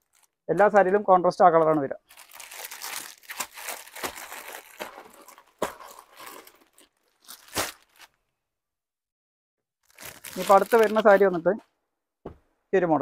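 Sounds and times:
fabric and wrapping rustling: 0.0 - 8.2, 9.8 - 11.6.

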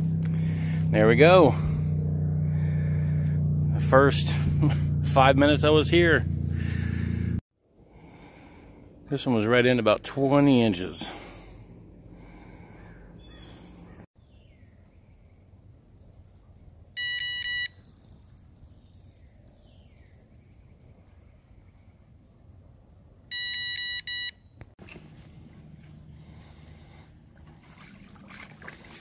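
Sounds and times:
bite alarm beeping: 17.0 - 17.8, 23.3 - 24.6.

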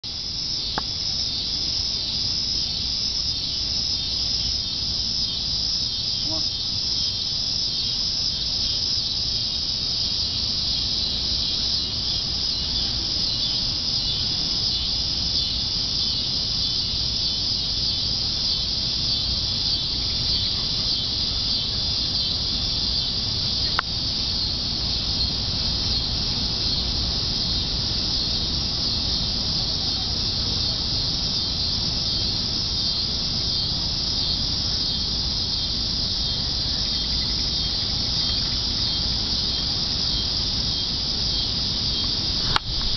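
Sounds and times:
night insects chirping: 0.0 - 42.9
sharp click: 42.5 - 42.9.

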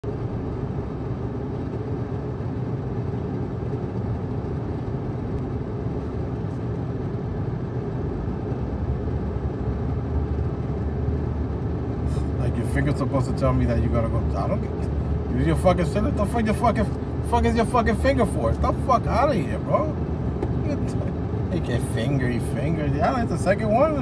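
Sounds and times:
vehicle engine rumble from inside: 0.0 - 24.0.

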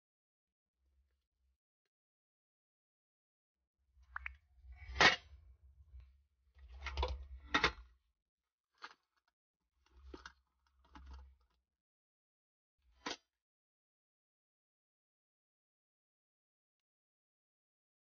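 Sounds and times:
objects knocking and clicking: 9.9 - 11.2.

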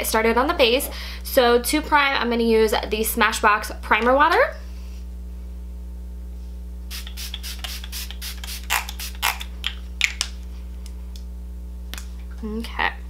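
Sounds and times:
steady low hum: 0.0 - 13.0
spray bottle bursts: 6.9 - 9.5.

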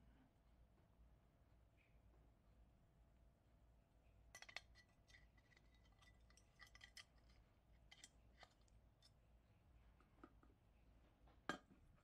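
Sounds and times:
pliers clicking and scraping metal: 4.4 - 9.2.

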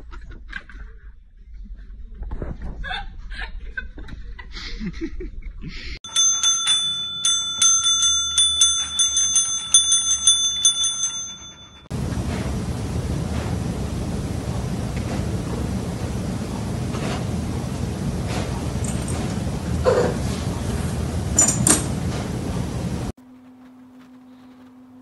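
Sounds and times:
service bell dinging: 6.1 - 16.8, 17.5 - 23.1.

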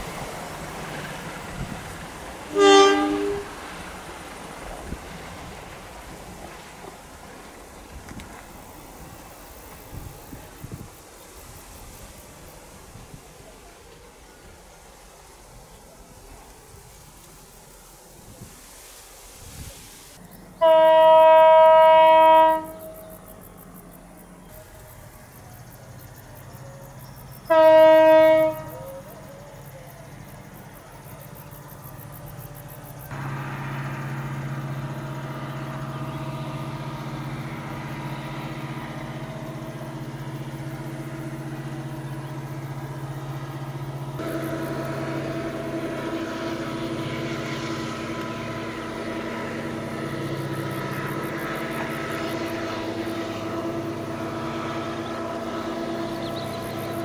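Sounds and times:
locomotive engine running: 0.0 - 18.0, 20.2 - 57.0
locomotive horn blast: 2.5 - 3.6, 20.6 - 23.2, 27.4 - 29.3, 33.1 - 57.0.

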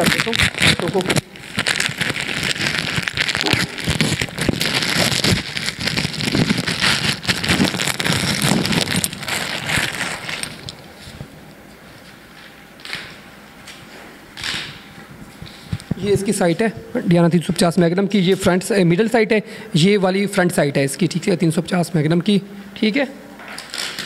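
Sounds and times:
plastic wrapping crinkling: 0.0 - 13.2, 23.4 - 24.0.

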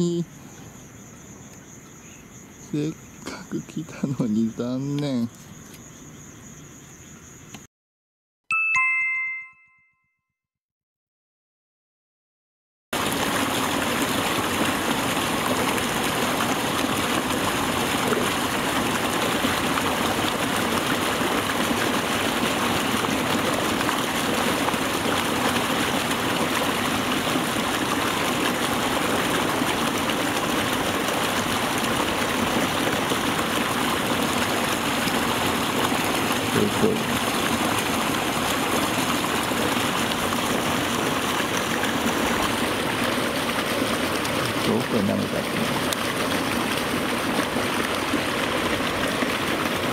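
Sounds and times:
water rushing through channel: 13.0 - 49.9.

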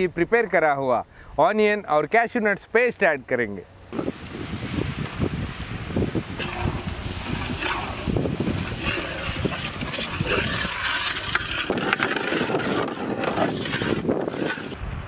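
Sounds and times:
steady cooking hiss: 3.7 - 11.8
utensils clicking and scraping: 6.4 - 14.8.

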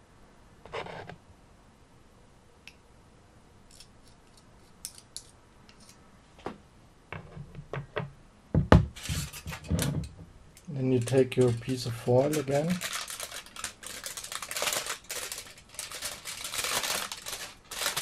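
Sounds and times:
aluminium foil crinkling: 10.6 - 18.0.

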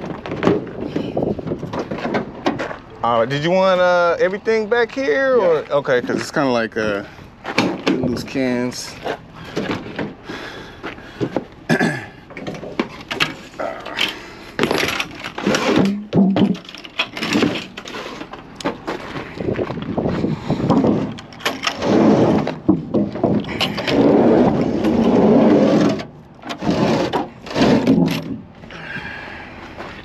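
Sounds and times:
cans scraping on van floor: 5.5 - 28.4.

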